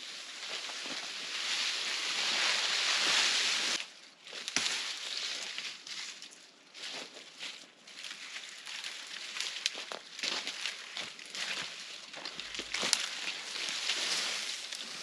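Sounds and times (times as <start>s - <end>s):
branches rustling and scraping: 0.0s - 15.0s.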